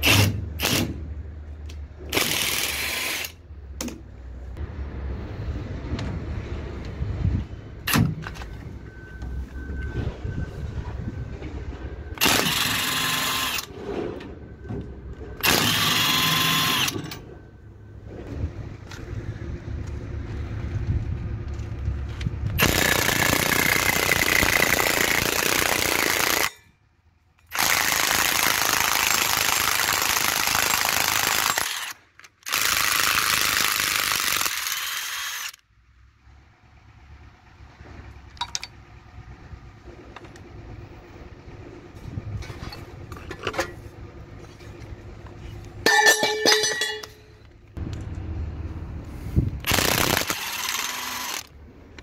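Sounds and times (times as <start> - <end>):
short metallic rattle: 45.8 - 47.4
impact wrench hammering: 45.9 - 47.2.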